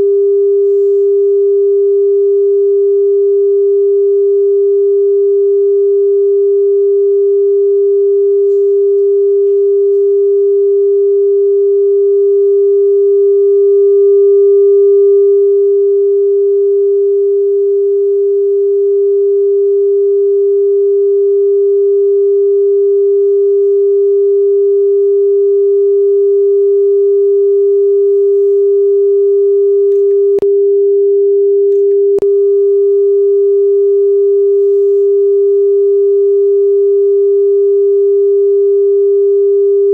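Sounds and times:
steady pure test tone: 0:00.0 - 0:39.9.

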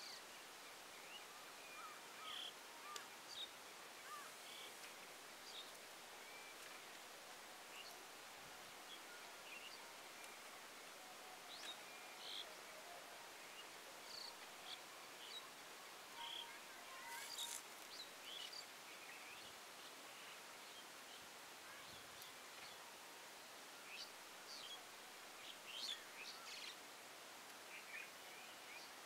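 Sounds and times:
faint steady hiss: 0:00.0 - 0:29.0.

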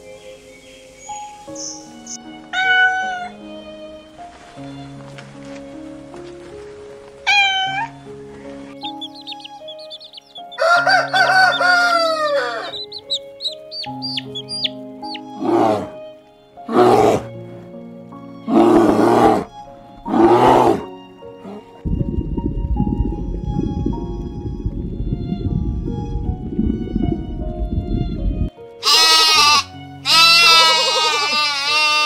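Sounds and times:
background music: 0:00.0 - 0:32.0
cat meow: 0:02.5 - 0:03.4, 0:07.3 - 0:08.0
small high peeps: 0:08.8 - 0:10.6, 0:12.7 - 0:15.3
rooster crowing: 0:10.4 - 0:13.0.

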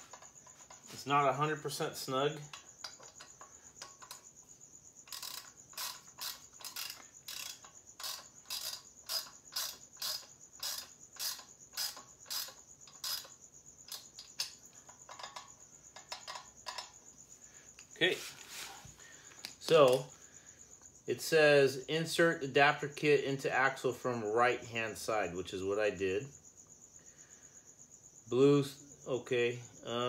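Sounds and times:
crickets chirping: 0:00.0 - 0:30.0
ratchet wrench clicking: 0:02.5 - 0:04.3, 0:05.0 - 0:17.0.

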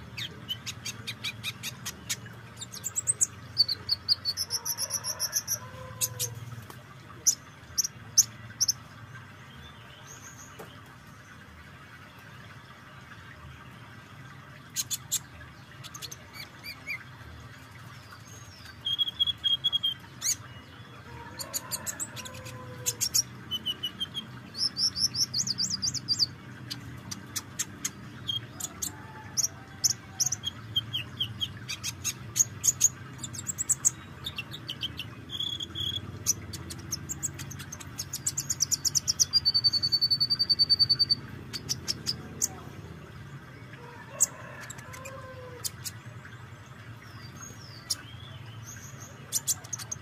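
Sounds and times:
bird chips and trills: 0:17.8 - 0:20.7, 0:21.4 - 0:42.6.

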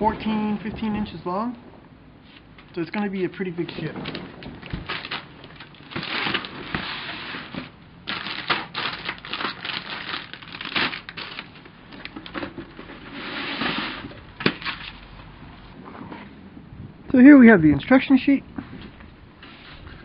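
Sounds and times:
plastic bags crinkling: 0:03.8 - 0:12.6.

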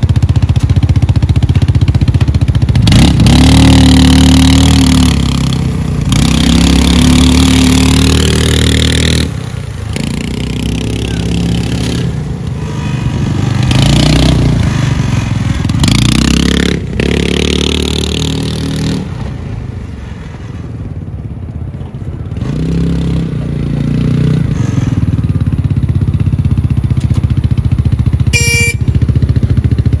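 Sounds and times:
go-kart engine revving: 0:00.1 - 0:19.3
brief beep: 0:28.4 - 0:28.9.

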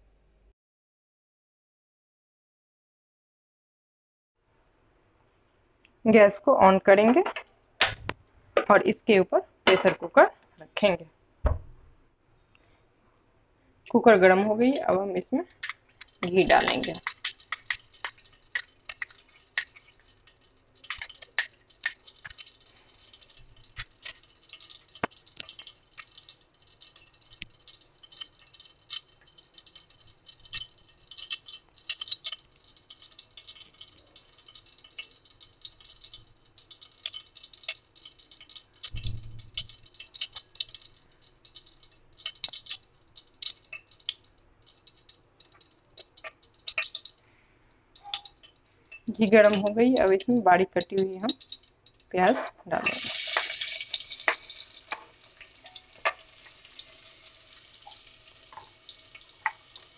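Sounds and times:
ghee popping and crackling: 0:07.2 - 0:08.4, 0:13.9 - 0:59.9
dull thump: 0:11.4 - 0:12.0.

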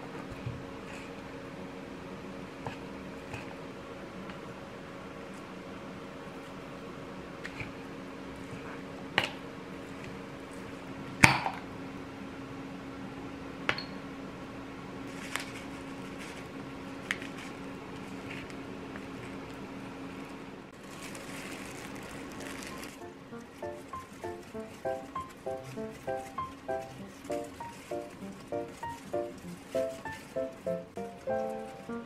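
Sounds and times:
plastic rustling: 0:15.1 - 0:19.5, 0:20.7 - 0:32.0.

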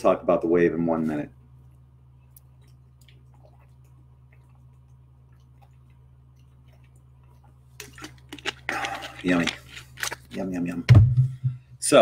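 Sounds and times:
low steady hum: 0:00.0 - 0:12.0
person drinking water: 0:02.3 - 0:10.4.

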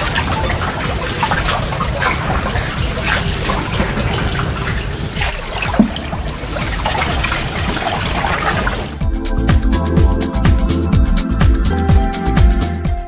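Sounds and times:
water trickling and sloshing: 0:00.0 - 0:09.0.

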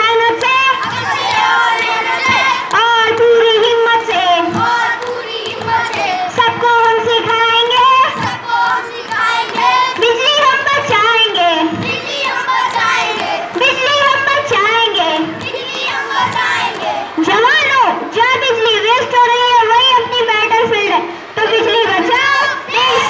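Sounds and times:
children singing: 0:00.7 - 0:02.7, 0:04.0 - 0:06.4, 0:07.6 - 0:10.4, 0:11.8 - 0:13.6, 0:15.4 - 0:17.2, 0:21.9 - 0:23.0.

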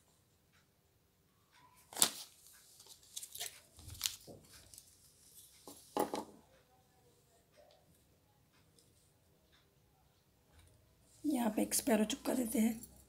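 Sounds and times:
paper rustling: 0:01.8 - 0:05.9
sharp knocks on table: 0:06.0 - 0:06.4.

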